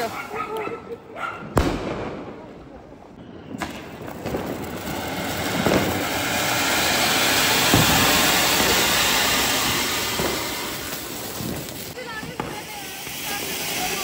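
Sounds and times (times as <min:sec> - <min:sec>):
firework fountain hissing: 0:00.0 - 0:00.4, 0:03.6 - 0:14.0
firework pops: 0:03.5 - 0:14.0.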